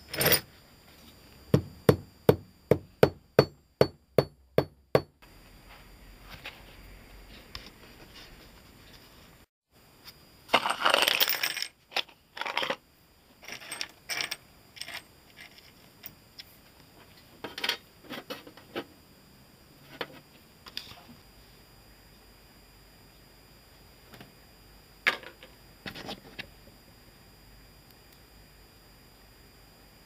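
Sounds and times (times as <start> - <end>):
metal screws and bolts rattling: 13.4 - 15.7.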